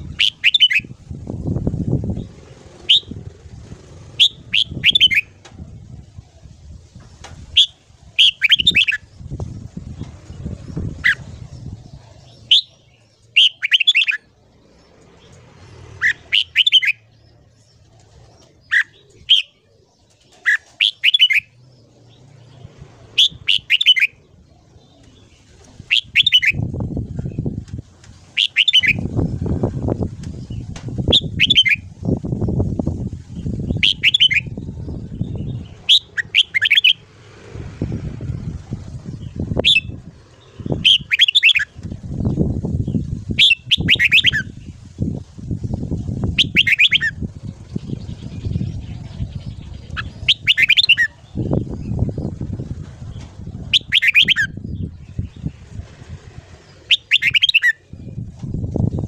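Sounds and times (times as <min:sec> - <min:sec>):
low irregular rumbling: 0:00.8 - 0:13.4, 0:14.2 - 0:20.3, 0:21.5 - 0:57.0
bird singing whistled phrases: 0:33.8 - 0:34.6, 0:43.4 - 0:44.5, 0:46.4 - 0:47.2, 0:49.9 - 0:51.2, 0:53.7 - 0:54.8, 0:56.9 - 0:57.8.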